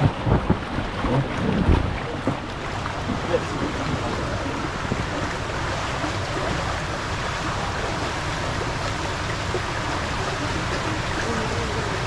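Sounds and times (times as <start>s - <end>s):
water rushing down slide: 0.0s - 12.0s.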